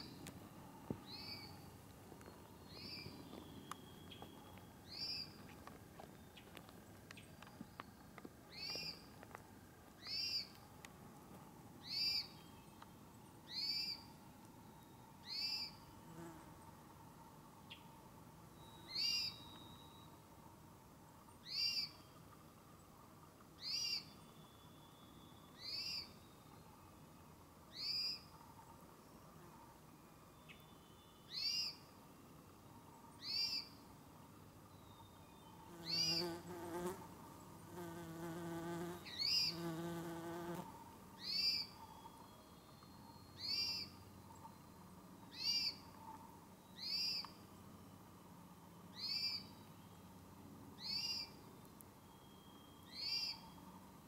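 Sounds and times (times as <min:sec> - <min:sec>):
bird high whistled call: 0:52.0 - 0:53.6.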